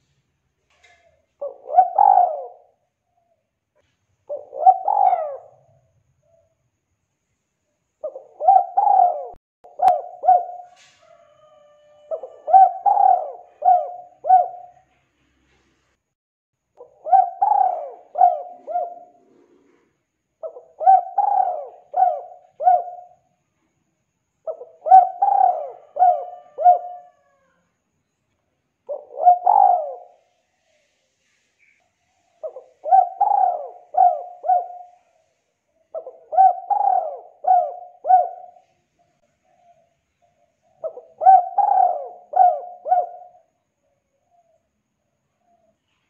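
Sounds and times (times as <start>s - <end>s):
dove cooing: 0.8s - 3.4s, 4.2s - 6.5s, 8.0s - 15.1s, 16.8s - 23.3s, 24.4s - 27.6s, 28.9s - 31.0s, 31.6s - 44.6s.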